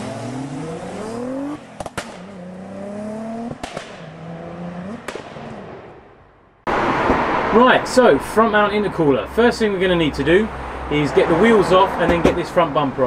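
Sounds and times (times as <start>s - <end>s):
car engine accelerating: 0.0s - 12.2s
sharp cracks at gear shifts: 3.4s - 7.6s.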